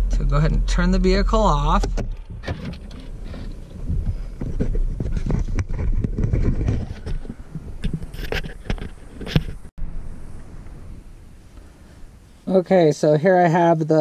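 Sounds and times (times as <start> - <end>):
low rumble: 0.0 - 7.8, 9.8 - 12.4
knocks and rustles: 1.7 - 9.7.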